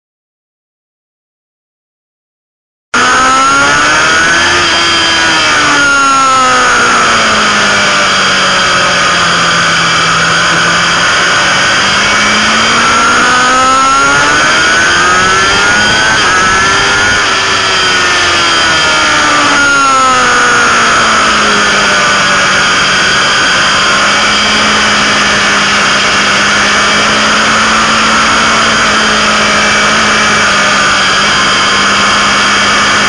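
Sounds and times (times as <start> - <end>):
motorcycle engine at speed: 3.0 - 33.0.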